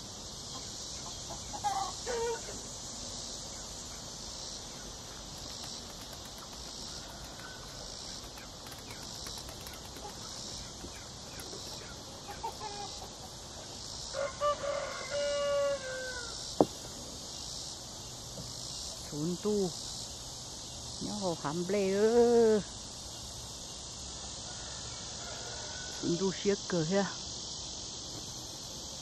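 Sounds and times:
insect chorus: 0:00.0 - 0:29.0
rooster crowing: 0:14.1 - 0:16.4, 0:24.4 - 0:26.1.

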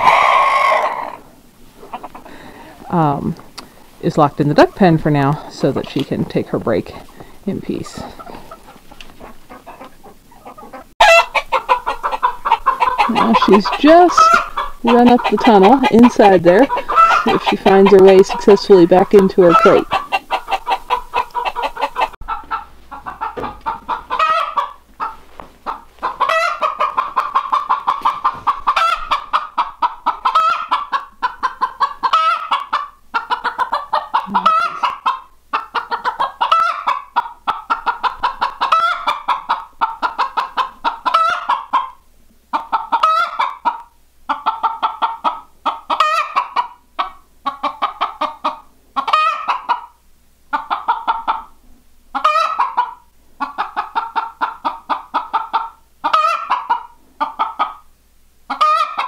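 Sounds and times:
hen clucking rapidly: 0:00.0 - 0:01.2, 0:01.8 - 0:51.5, 0:52.1 - 0:57.8, 0:58.5 - 0:59.0.

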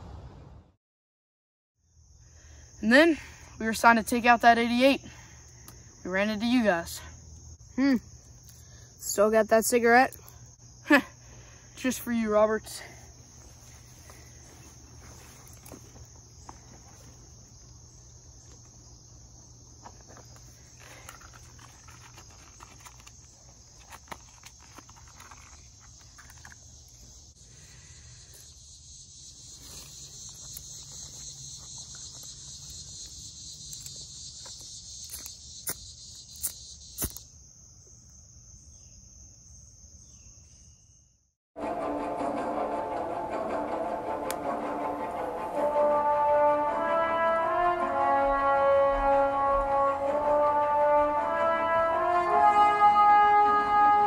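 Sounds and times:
crickets trilling: 0:01.8 - 0:41.3
faint rustles and clicks: 0:19.8 - 0:26.7.

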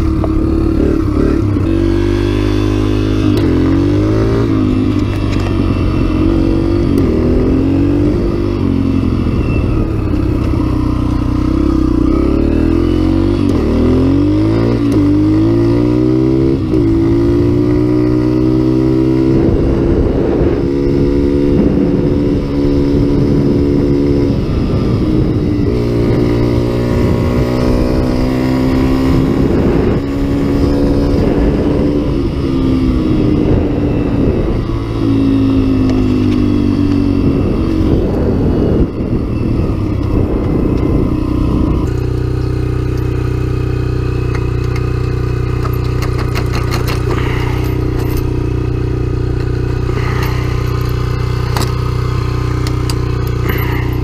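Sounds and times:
off-road vehicle engine: 0:00.0 - 0:54.0
tyres on gravel: 0:44.2 - 0:54.0
chain and metal gate clinking: 0:45.6 - 0:48.4.

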